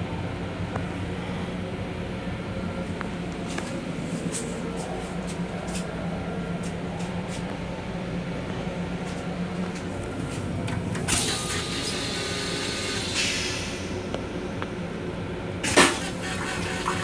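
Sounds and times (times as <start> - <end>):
railcar running hum: 0.0 - 17.0
toilet flushing: 11.0 - 14.0, 15.6 - 17.0.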